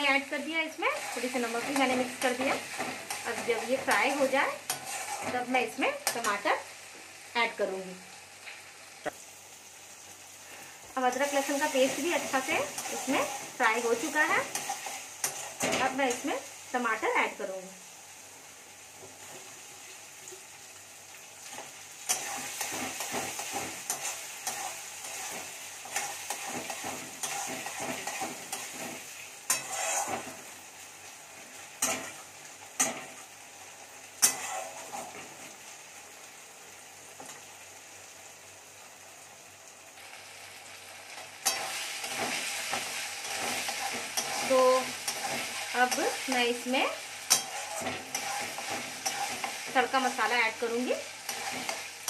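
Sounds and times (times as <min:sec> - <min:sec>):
tomatoes sizzling in hot oil: 0:00.0 - 0:52.0
metal spatula scraping pan: 0:01.0 - 0:05.4, 0:22.1 - 0:30.5, 0:34.2 - 0:35.3, 0:41.4 - 0:46.4, 0:47.3 - 0:50.2, 0:51.2 - 0:51.9
spatula clanking against pan: 0:47.3 - 0:49.6.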